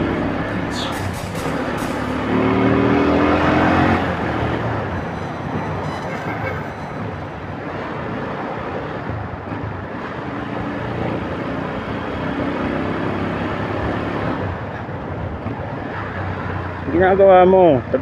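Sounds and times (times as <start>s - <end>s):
wind and road rush: 0.0s - 18.0s.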